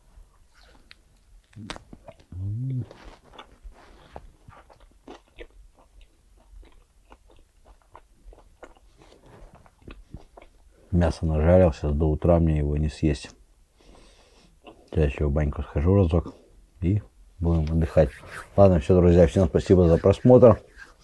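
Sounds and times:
person chewing meat: 0:00.5 - 0:10.9, 0:14.3 - 0:14.9.

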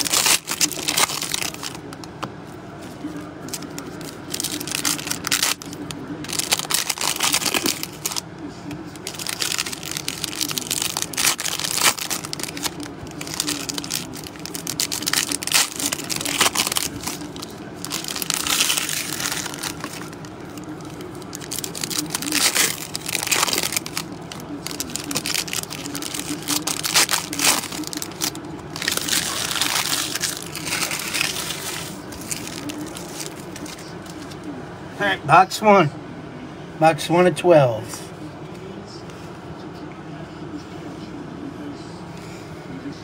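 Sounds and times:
plastic wrapping crinkling and tearing: 0:00.0 - 0:02.1, 0:03.4 - 0:08.2, 0:08.9 - 0:34.4.

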